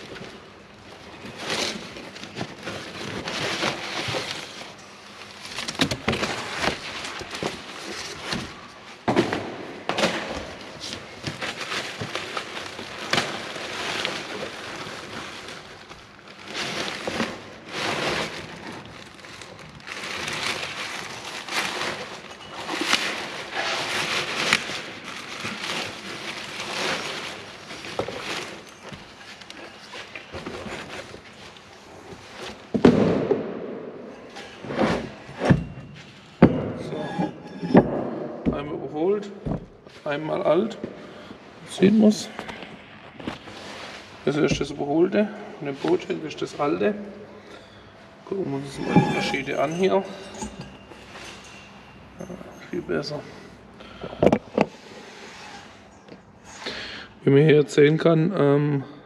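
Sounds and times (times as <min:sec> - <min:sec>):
packing crackling and rustling: 0:00.0 - 0:09.0, 0:09.9 - 0:32.8, 0:48.5 - 0:52.2.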